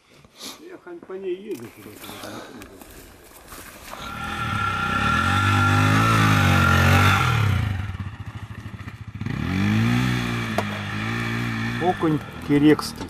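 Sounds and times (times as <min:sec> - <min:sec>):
dirt bike engine revving: 0:04.0 - 0:13.0.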